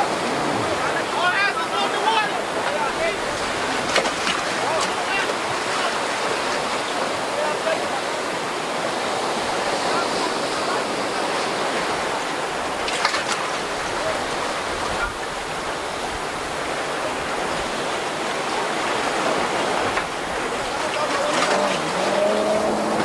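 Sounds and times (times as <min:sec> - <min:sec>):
water rushing and breaking: 0:00.0 - 0:23.0.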